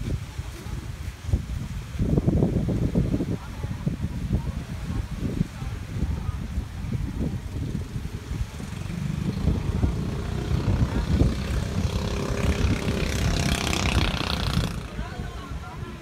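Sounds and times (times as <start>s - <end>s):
wind buffeting microphone: 0.0s - 16.0s
small boat engine running: 7.7s - 15.2s.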